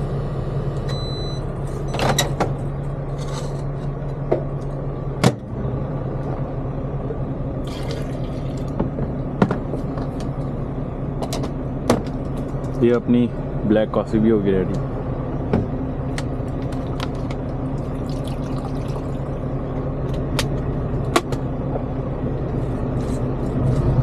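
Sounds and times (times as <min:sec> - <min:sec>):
low hum: 0:00.0 - 0:24.0
microwave beep: 0:00.1 - 0:02.2.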